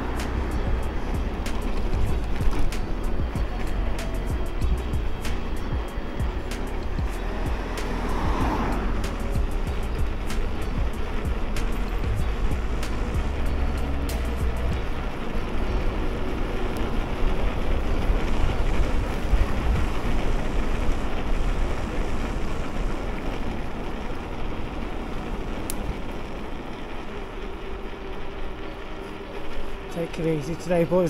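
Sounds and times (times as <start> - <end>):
rumbling road noise: 0.0 - 31.0
wind on microphone: 4.2 - 26.9.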